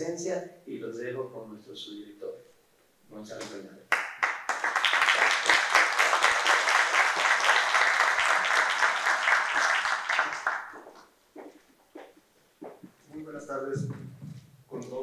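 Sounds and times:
small audience applauding: 3.9s - 11.1s.

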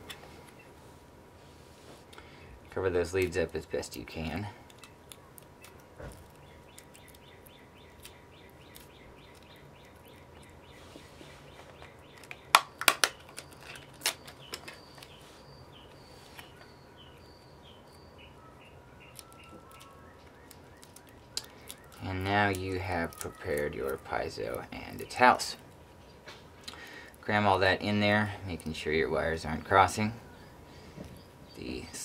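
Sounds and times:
packing tape crinkling: 11.7s - 15.2s, 19.1s - 25.8s.

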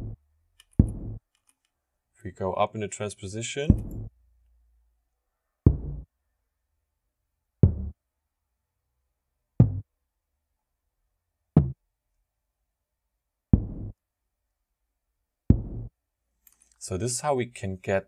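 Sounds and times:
low tom drum hits: 0.8s - 1.2s, 3.7s - 4.1s, 13.6s - 13.9s, 15.5s - 15.9s.

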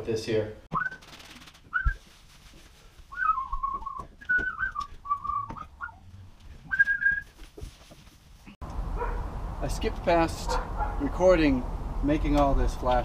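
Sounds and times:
man whistling a tune: 0.7s - 1.0s, 1.7s - 2.0s, 3.1s - 6.0s, 6.7s - 7.3s.

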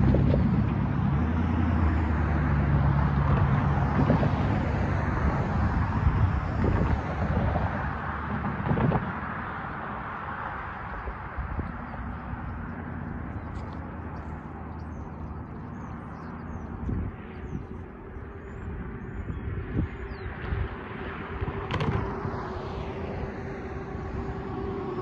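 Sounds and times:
car passing: 0.0s - 25.0s
traffic rumble: 0.0s - 25.0s
small birds chirping: 10.9s - 20.7s.

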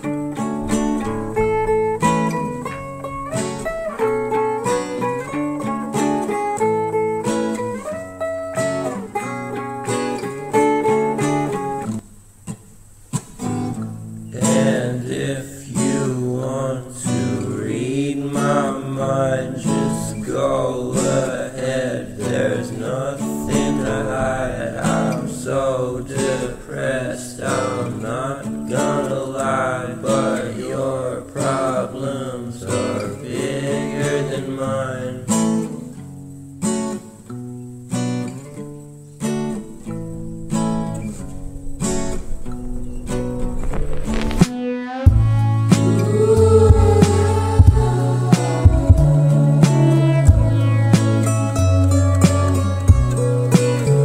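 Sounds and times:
strummed acoustic guitar: 0.0s - 54.0s
person singing: 14.3s - 35.8s, 44.5s - 54.0s.

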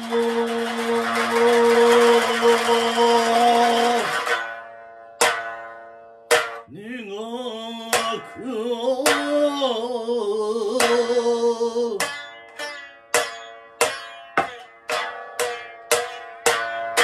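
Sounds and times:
man singing long note: 0.0s - 4.3s, 6.7s - 12.0s
lute strokes ringing: 0.0s - 5.7s.

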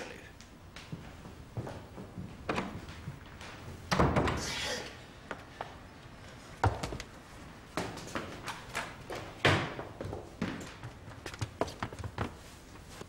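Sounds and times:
sharp knocks and clunks: 3.9s - 4.5s.

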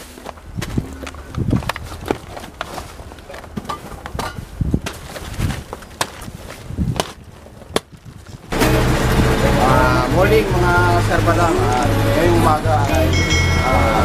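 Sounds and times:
plastic bags rustling: 0.0s - 8.6s.

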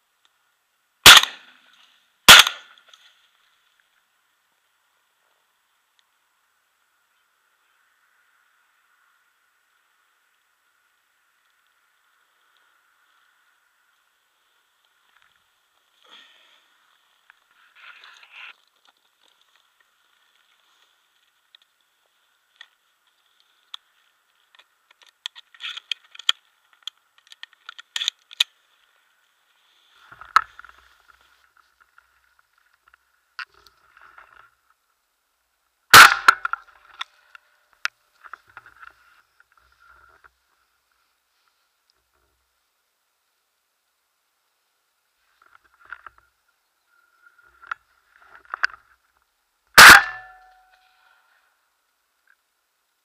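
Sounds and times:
loud sharp crack: 1.0s - 1.6s, 2.3s - 2.8s, 35.9s - 36.6s, 49.8s - 50.5s.

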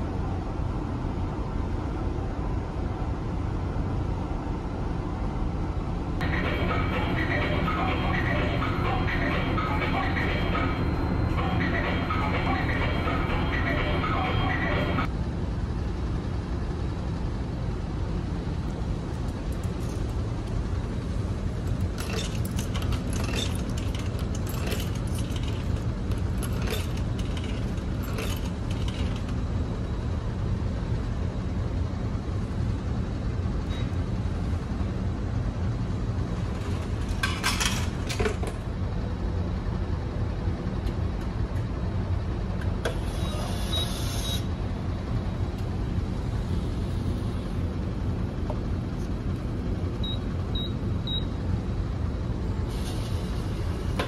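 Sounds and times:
low engine drone: 0.0s - 54.0s
vending machine clicks and clinks: 21.6s - 29.4s, 36.6s - 38.6s.

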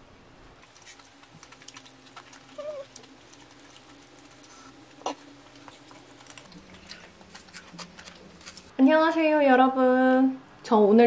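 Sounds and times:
chewing: 0.6s - 8.7s.

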